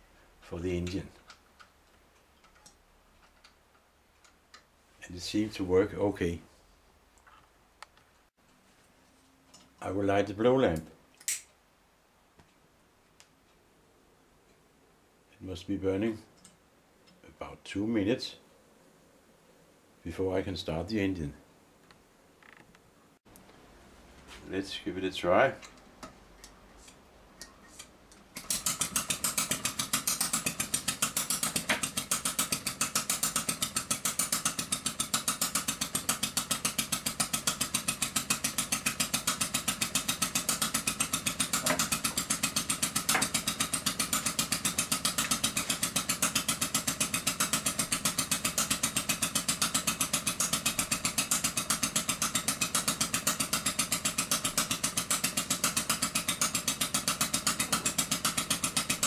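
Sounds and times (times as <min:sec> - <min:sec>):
hand cranking engine: 0:27.5 - 0:59.0
small engine running: 0:28.4 - 0:59.0.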